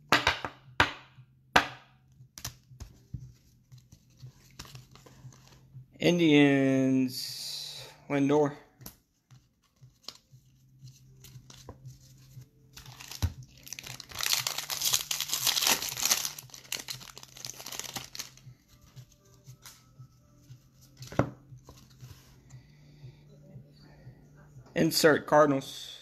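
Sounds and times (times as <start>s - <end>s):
foil wrapper tearing and crinkling: 12.9s - 18.4s.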